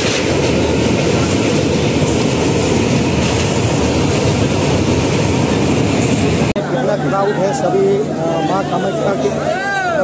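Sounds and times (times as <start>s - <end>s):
train wheels rumbling on bridge: 0.0s - 6.6s.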